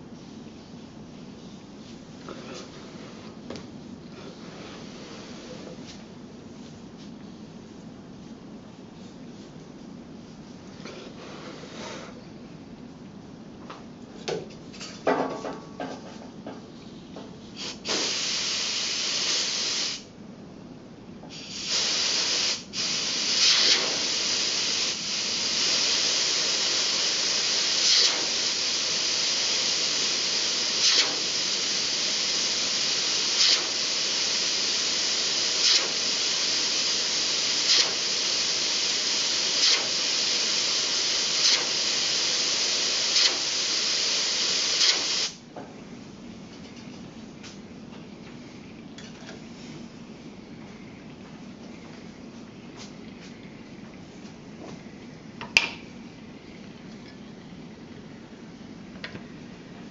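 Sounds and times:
compressed air hissing: 17.6 - 20.1, 21.3 - 45.4.

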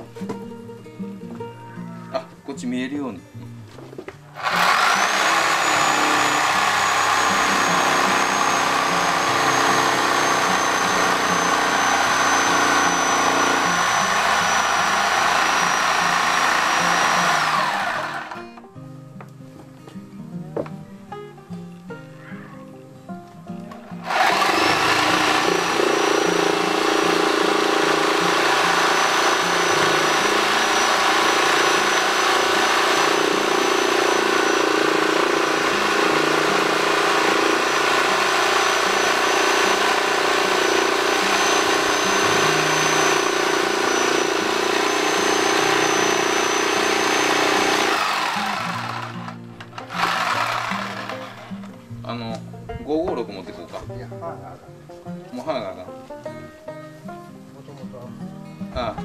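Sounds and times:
electric power tool whining: 4.3 - 18.6, 23.7 - 51.8.

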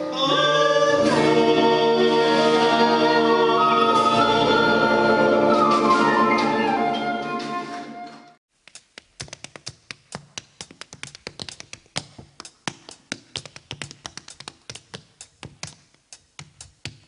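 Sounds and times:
sung ballad with accompaniment: 0.0 - 8.0
tap dancing shoes on stage: 8.6 - 17.0.

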